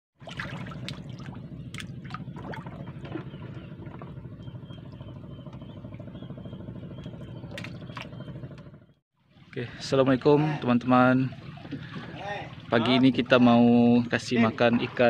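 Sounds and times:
fish splashing at water surface: 0.2s - 2.9s
low motor-like drone: 0.2s - 9.0s.

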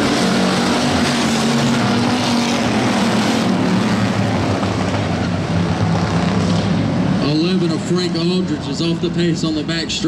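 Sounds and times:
race car engines droning: 0.0s - 10.0s.

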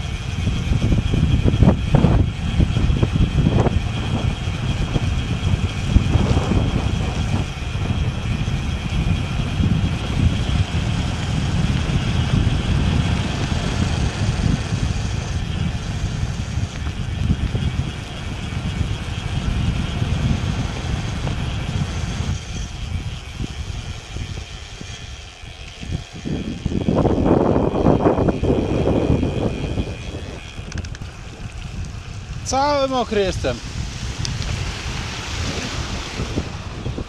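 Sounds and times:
wind buffeting microphone: 0.0s - 37.0s
steady hiss: 31.4s - 37.0s.

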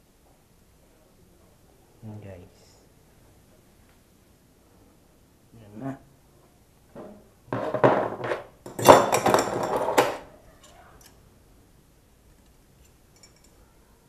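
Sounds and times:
metal tools clattering on workbench: 7.0s - 10.3s.

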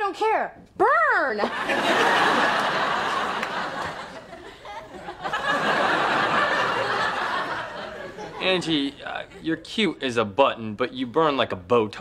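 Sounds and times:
studio audience laughing: 1.5s - 9.6s.

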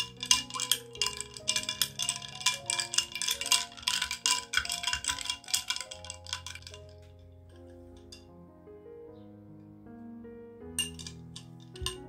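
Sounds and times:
glass straw clinking in glass: 0.0s - 7.1s, 10.8s - 12.0s
soft background music: 0.0s - 12.0s.

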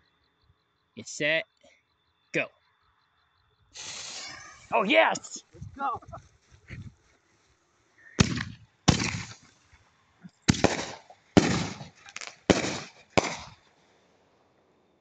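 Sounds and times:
fireworks bangs: 3.8s - 6.2s, 8.1s - 13.7s.

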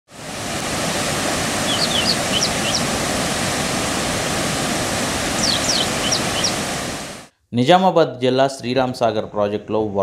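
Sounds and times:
floodwater rushing through spillway: 0.1s - 7.3s
high bird chirps: 1.6s - 2.9s, 5.4s - 6.6s.

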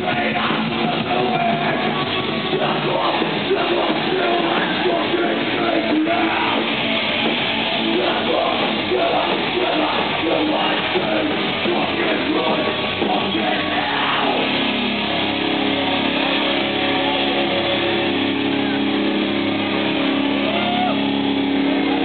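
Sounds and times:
distorted electric guitar: 0.0s - 22.0s
drums: 0.0s - 22.0s
shouted vocals: 15.5s - 22.0s.

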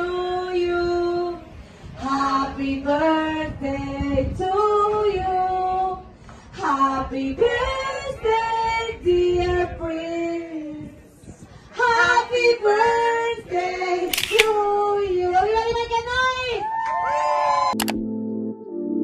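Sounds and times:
woman singing slow melody: 0.0s - 11.0s
sharp click: 14.1s - 14.6s, 17.8s - 18.0s.

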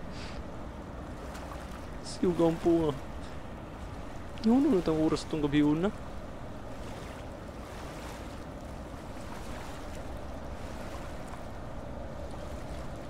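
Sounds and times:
low rumbling hiss: 0.0s - 7.6s.

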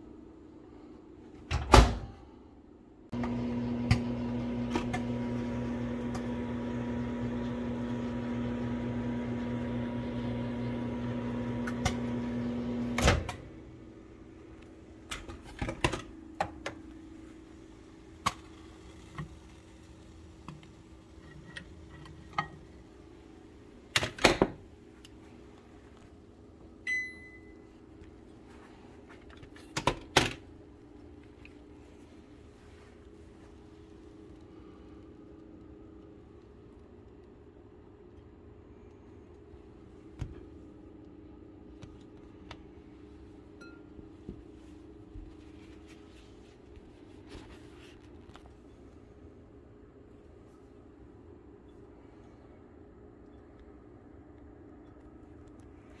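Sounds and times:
microwave humming: 3.1s - 28.5s, 39.5s - 45.5s
short high beep: 26.9s - 27.6s.

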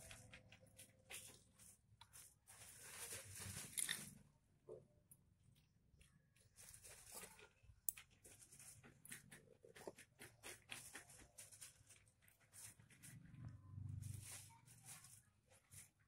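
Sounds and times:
soft rustling: 0.0s - 4.2s, 6.4s - 9.2s.

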